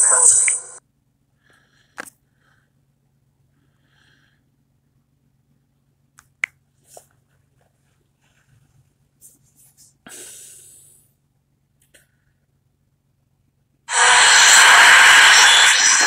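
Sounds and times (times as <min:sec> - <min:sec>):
ghost box app hissing: 0:00.0 - 0:00.8, 0:13.9 - 0:16.0
low hum: 0:13.9 - 0:16.0.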